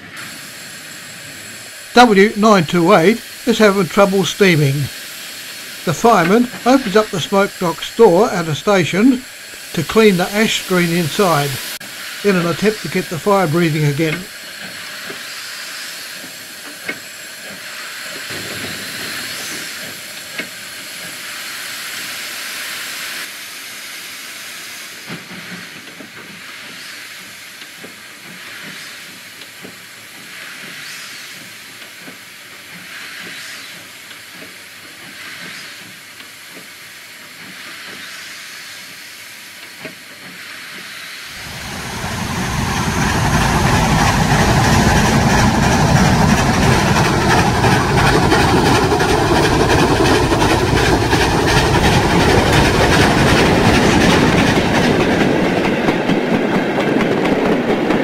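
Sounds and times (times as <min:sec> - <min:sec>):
steam locomotive hissing: 0:00.0 - 0:57.9
deep heavy engine sound: 0:01.4 - 0:14.4, 0:41.3 - 0:55.4.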